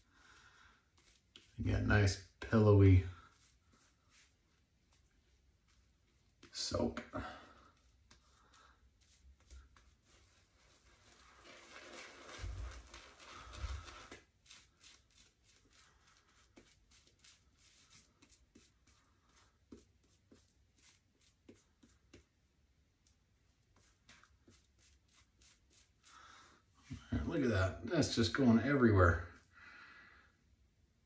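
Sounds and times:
shaving brush rubbing lather: 2.5s - 6.8s, 7.6s - 22.2s, 23.7s - 26.3s.

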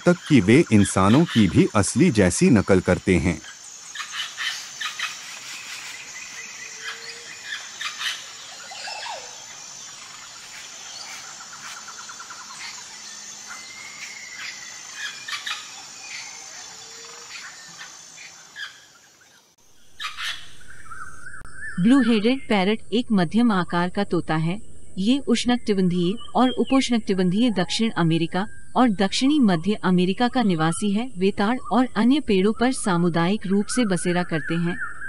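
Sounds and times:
bird trill: 0.0s - 19.1s, 19.8s - 22.6s, 31.5s - 35.0s
wild birds chirping: 0.0s - 22.8s, 24.8s - 35.0s
high insect hum: 0.0s - 35.0s.

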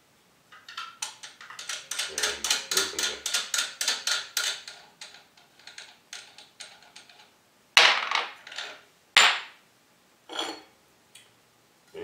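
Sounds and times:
sharp metal clanks: 0.6s - 4.8s.

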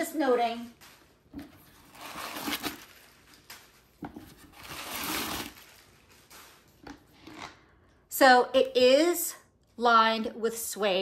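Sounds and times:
tissue paper rustling: 0.3s - 6.8s.

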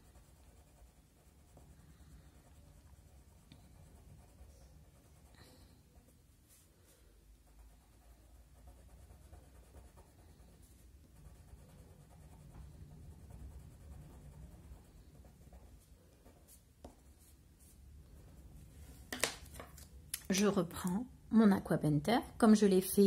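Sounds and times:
pencil scratching on paper: 0.0s - 6.7s, 7.4s - 18.7s.

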